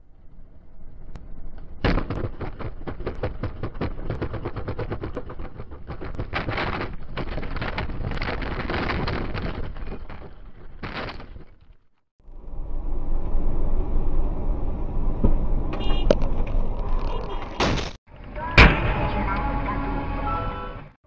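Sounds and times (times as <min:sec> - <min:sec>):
vehicle rattling over rough ground: 0:00.2 - 0:20.1
loud crack: 0:01.8 - 0:11.6.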